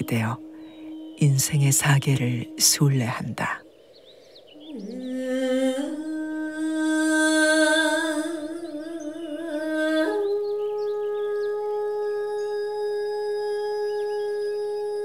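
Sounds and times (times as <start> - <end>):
faint high chirps: 0.0 - 7.1
slow wordless melody: 0.0 - 15.0.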